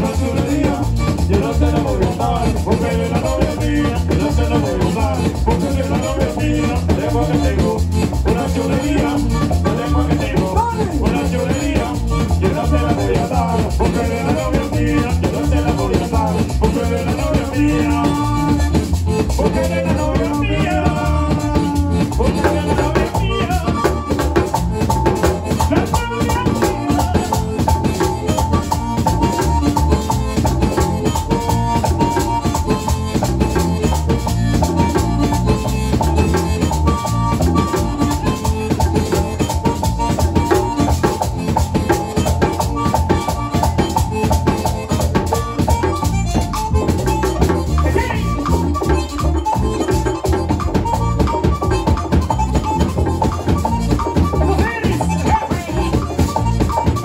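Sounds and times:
person singing: 0.0s - 24.5s, 25.5s - 29.4s
drums beating: 0.0s - 57.0s
live band playing latin dance music: 0.0s - 57.0s.

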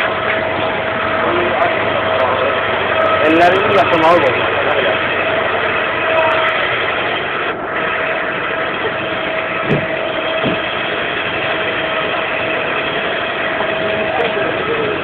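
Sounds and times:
mechanical engine noise: 0.0s - 15.0s
short dull thumps: 9.6s - 10.7s.

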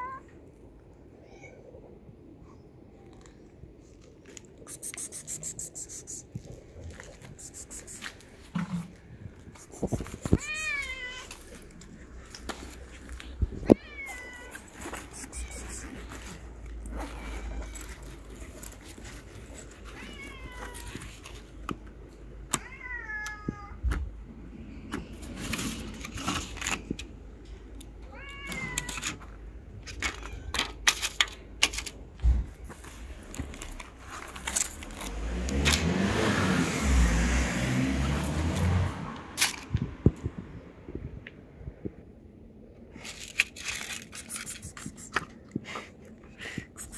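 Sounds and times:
cat meowing: 10.2s - 11.4s, 13.6s - 16.4s, 19.9s - 21.1s, 28.1s - 29.0s.

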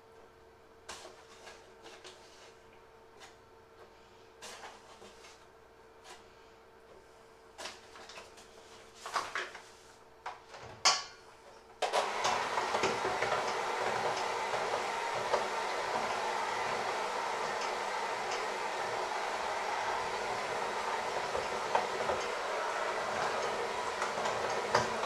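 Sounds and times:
electric hand mixer running: 11.8s - 25.0s.

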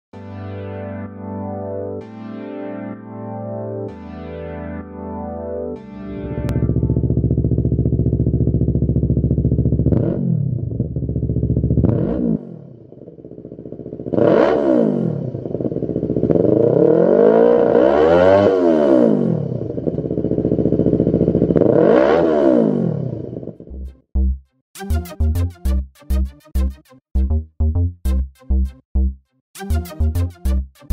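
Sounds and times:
electronic music with steady beat: 2.0s - 7.0s, 23.7s - 30.9s
motorcycle engine revving: 6.3s - 23.8s.

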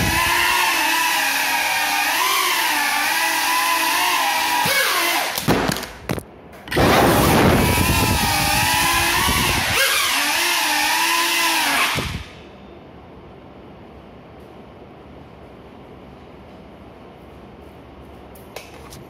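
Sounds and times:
quadcopter motors whining: 0.0s - 5.4s, 7.1s - 12.4s.

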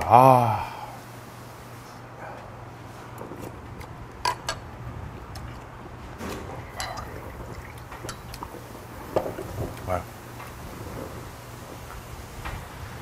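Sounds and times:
liquid pouring into a glass: 6.4s - 9.5s.

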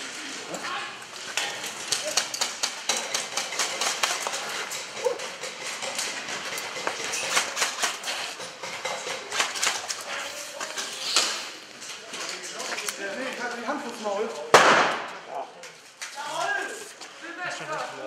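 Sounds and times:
airsoft guns firing: 14.5s - 15.2s.

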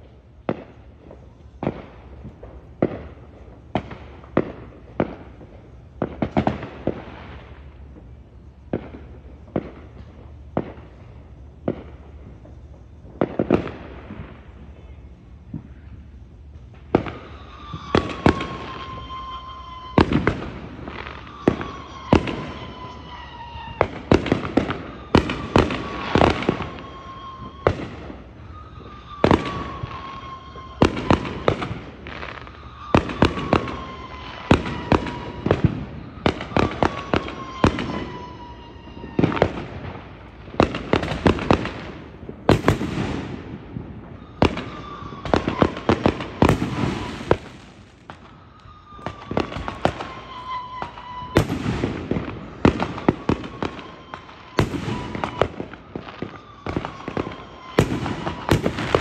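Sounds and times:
fireworks bangs and cracks: 0.0s - 59.0s.

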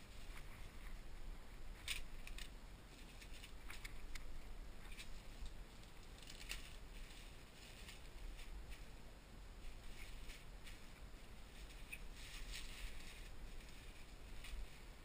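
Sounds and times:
bubble wrap crinkling: 4.9s - 8.6s.

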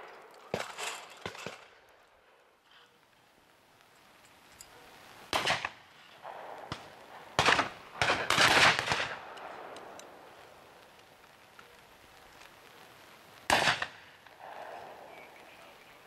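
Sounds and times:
shotgun shots: 5.3s - 9.9s, 13.5s - 14.8s.

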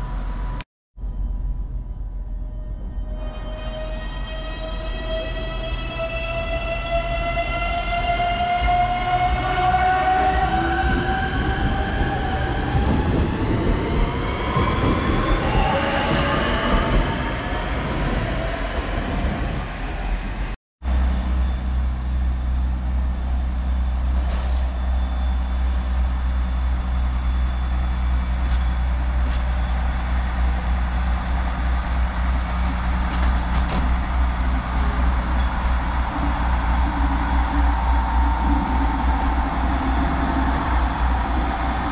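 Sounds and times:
diesel train engine humming: 19.5s - 41.9s.

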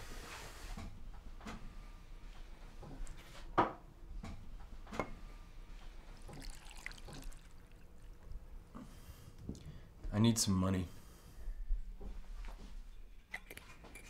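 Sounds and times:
liquid pouring into glass: 6.3s - 8.3s.

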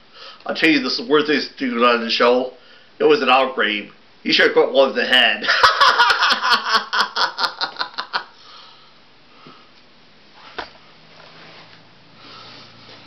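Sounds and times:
person laughing: 5.4s - 8.4s.

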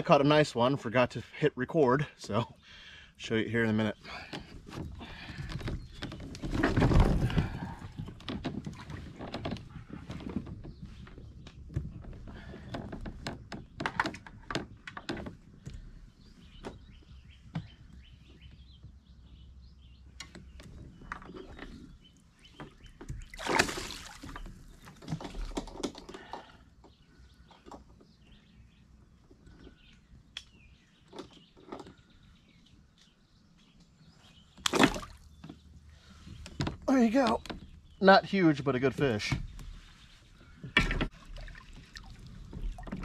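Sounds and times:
gear clicking on plastic kayak: 4.1s - 18.4s, 24.4s - 28.2s.

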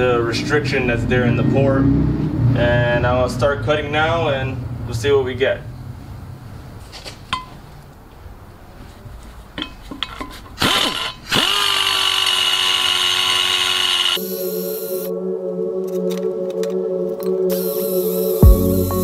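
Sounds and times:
die grinder whining: 10.6s - 14.2s
background music: 14.2s - 19.0s.

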